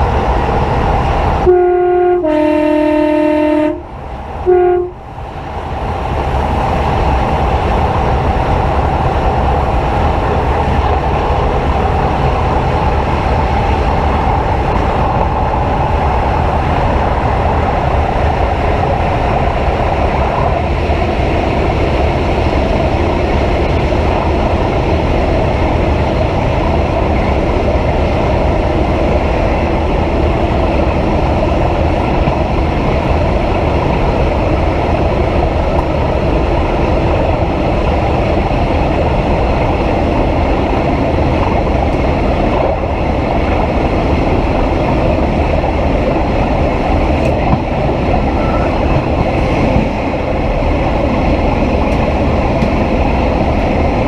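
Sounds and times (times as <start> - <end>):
train rumbling on rails: 0.0 - 54.0
train horn: 1.4 - 5.0.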